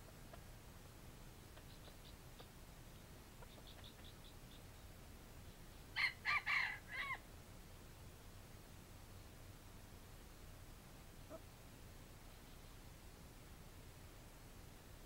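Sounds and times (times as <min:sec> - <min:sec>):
faint clucks: 0:00.0 - 0:00.5, 0:01.4 - 0:04.3
rooster crowing: 0:06.0 - 0:07.2.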